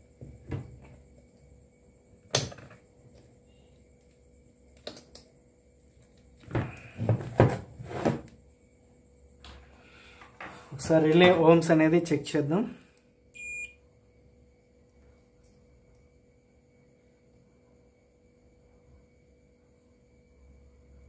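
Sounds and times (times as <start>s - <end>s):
plastic housing knocks and scrapes: 6.4s - 8.3s.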